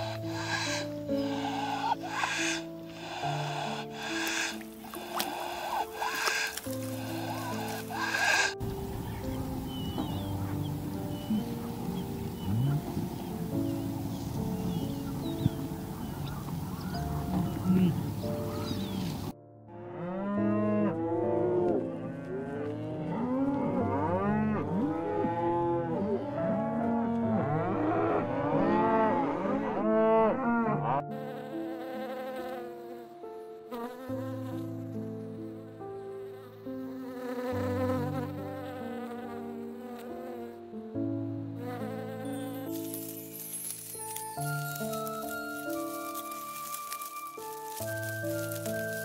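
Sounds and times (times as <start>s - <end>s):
wildebeest grunting: 0.0s - 8.6s, 9.8s - 13.8s, 15.4s - 19.0s
honeybee buzzing: 0.0s - 19.1s, 31.1s - 34.9s, 36.2s - 40.7s, 41.5s - 49.0s
background music: 0.0s - 49.0s.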